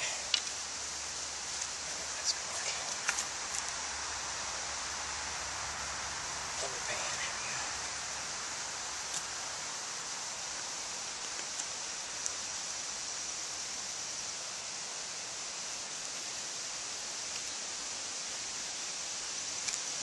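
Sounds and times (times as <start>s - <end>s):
steady outdoor hiss: 0.0s - 20.0s
faint sharp ticks: 19.6s - 19.9s.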